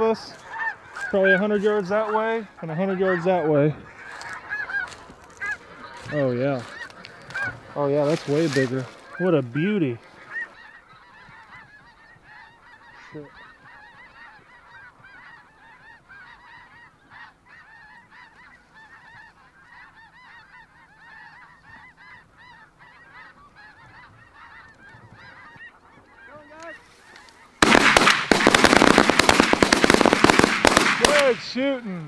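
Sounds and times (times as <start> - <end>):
snow geese honking: 0.0 - 32.0
shotgun fire: 27.6 - 31.4.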